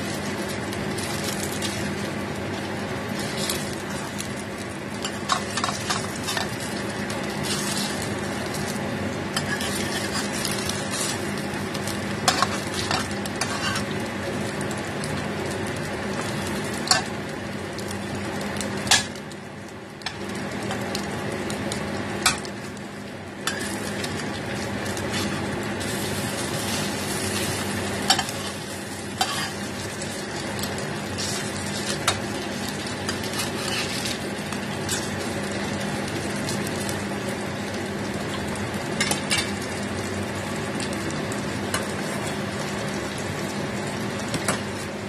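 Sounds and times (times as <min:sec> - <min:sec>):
food sizzling in oil: 0:00.0 - 0:45.0
metal spatula scraping pan: 0:09.4 - 0:11.1, 0:12.3 - 0:13.9, 0:29.2 - 0:29.6.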